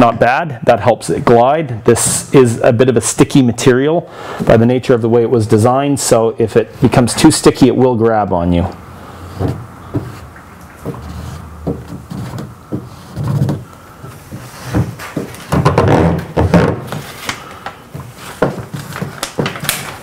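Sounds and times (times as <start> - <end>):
squeegee scraping wet vinyl: 9.2 - 17.4.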